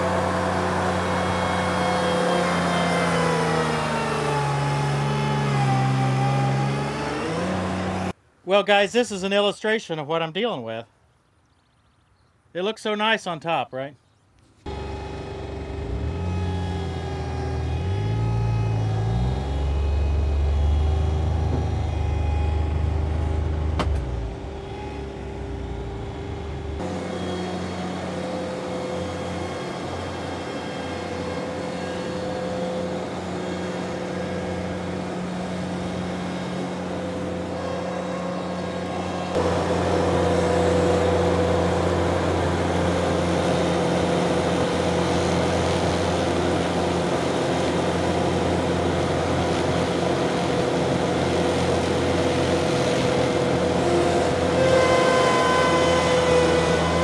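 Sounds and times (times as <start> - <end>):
mower cutting grass: 0.0 - 8.2, 14.6 - 57.0
tractor engine under load: 14.6 - 57.0.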